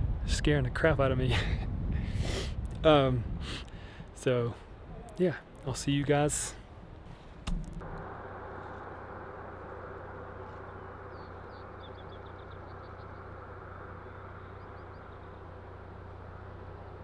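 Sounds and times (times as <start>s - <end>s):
low hum: 1.4s - 17.0s
outdoor rushing noise: 5.7s - 17.0s.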